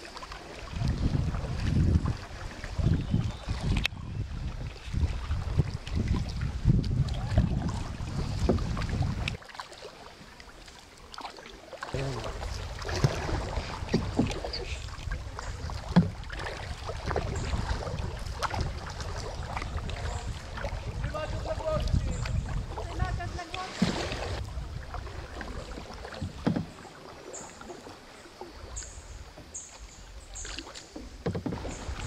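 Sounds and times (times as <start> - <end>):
paddle splashing water: 0.0 - 32.0
wind buffeting microphone: 0.6 - 9.4, 12.0 - 26.4.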